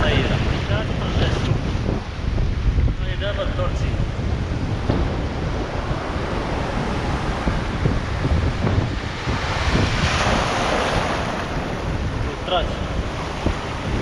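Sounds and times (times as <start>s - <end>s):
surf washing over rocks: 0.0s - 14.0s
wind buffeting microphone: 0.0s - 14.0s
wave breaking over rocks: 4.0s - 14.0s.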